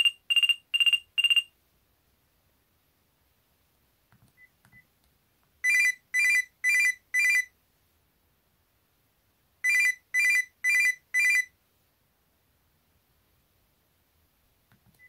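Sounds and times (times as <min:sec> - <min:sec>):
buzzy electronic phone ringtone: 0:00.0 - 0:01.5, 0:05.6 - 0:07.5, 0:09.6 - 0:11.5.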